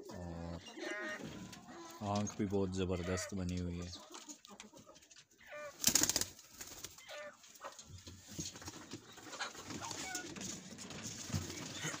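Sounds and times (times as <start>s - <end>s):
pigeons cooing: 0.0s - 2.0s
wings flapping: 5.7s - 7.0s.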